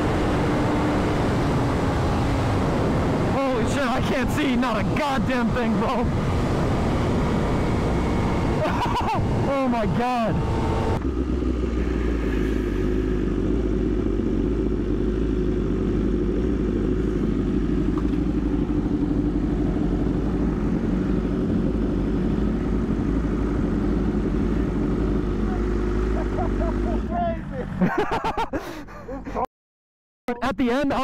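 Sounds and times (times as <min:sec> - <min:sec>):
motorcycle engine idling: 0:10.9 - 0:27.8.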